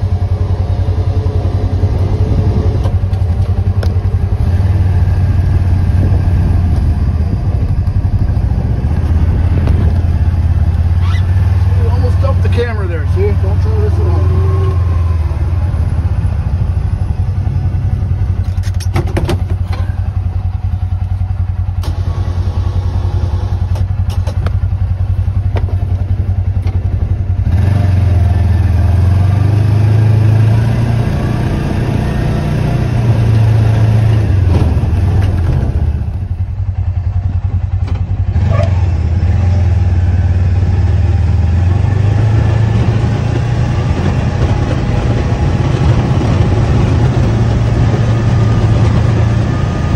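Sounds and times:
utility vehicle engine running: 0.0s - 49.9s.

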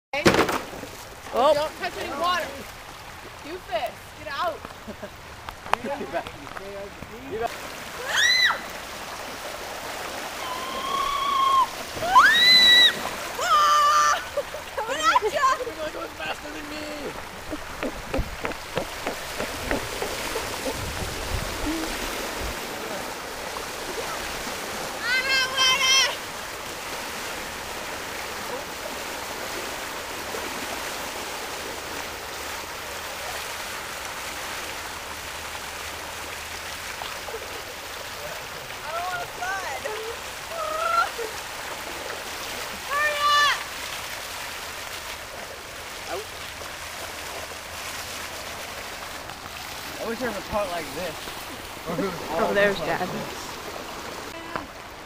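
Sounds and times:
water running down spillway: 0.2s - 55.0s
children crying out: 8.0s - 8.7s, 10.4s - 15.4s.

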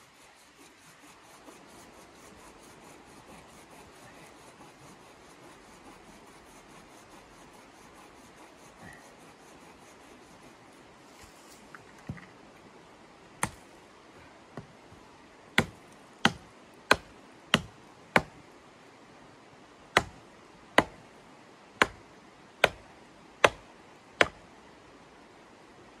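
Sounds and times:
sharp dry knocks: 13.4s - 13.6s, 15.6s - 18.3s, 20.0s - 20.2s, 21.8s - 22.0s, 22.6s - 22.8s.

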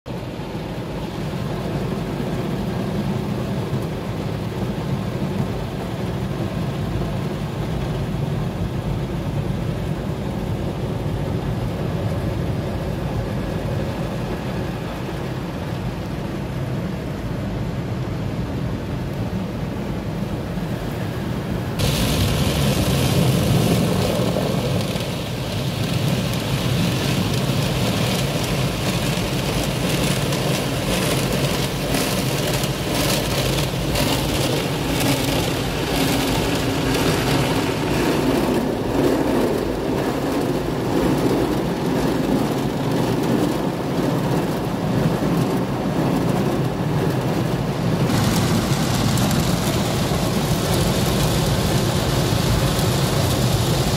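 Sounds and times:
low rumble: 21.8s - 27.4s, 48.0s - 52.6s
water hissing on glass: 21.8s - 28.6s
car wash brushes and water: 21.8s - 53.9s.

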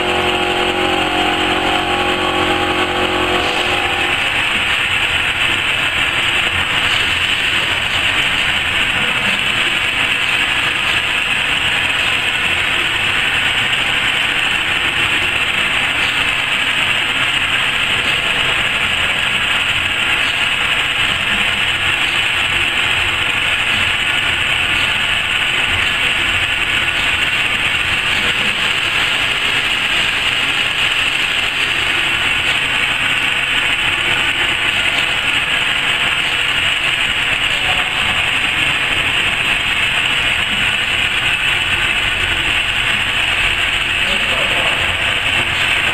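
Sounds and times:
cutting machine whirring and hissing: 0.0s - 10.2s.

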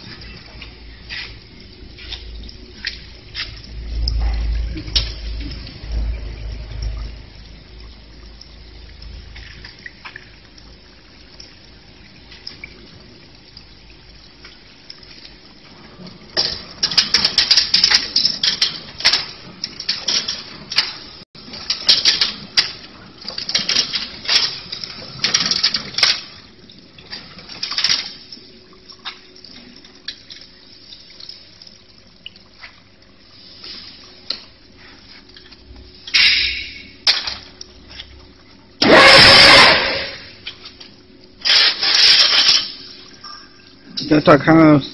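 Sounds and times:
wire weaving machine clattering: 16.4s - 26.3s.

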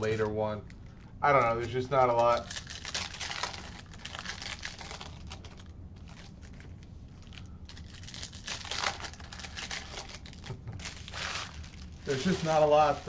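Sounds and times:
foil wrapper crinkling: 0.0s - 13.0s.

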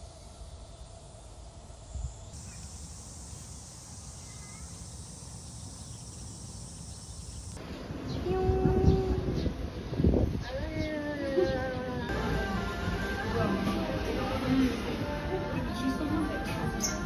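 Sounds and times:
faint chirps: 0.0s - 8.2s
high-pitched insect drone: 1.8s - 7.6s
background guitar music: 12.1s - 17.0s.

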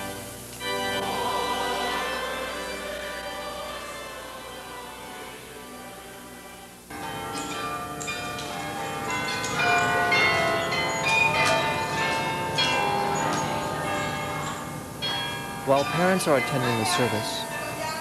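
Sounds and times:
music: 0.0s - 18.0s
carillon bells ringing: 6.9s - 18.0s.

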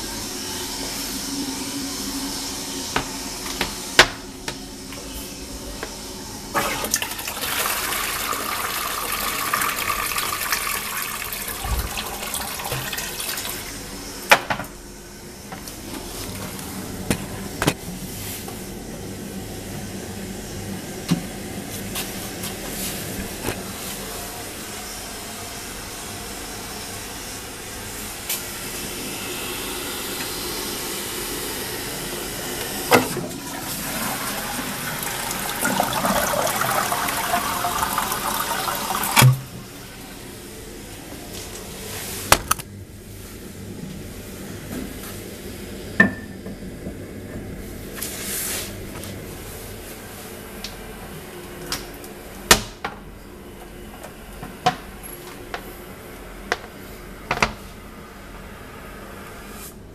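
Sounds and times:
cistern refilling with hiss: 0.0s - 14.3s, 15.0s - 42.3s
toilet flushing: 0.0s - 42.3s.

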